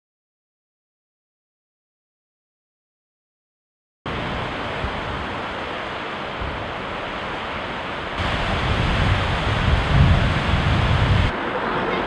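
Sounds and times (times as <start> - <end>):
wind buffeting microphone: 4.1 - 11.7
steady rushing noise: 4.1 - 12.0
low rumble: 8.2 - 11.3.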